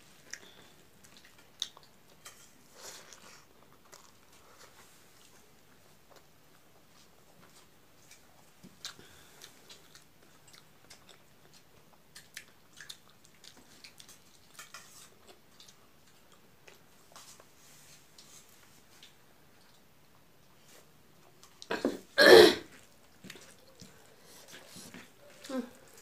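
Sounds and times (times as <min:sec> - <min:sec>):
person chewing: 0:00.2 - 0:17.5, 0:22.7 - 0:26.0.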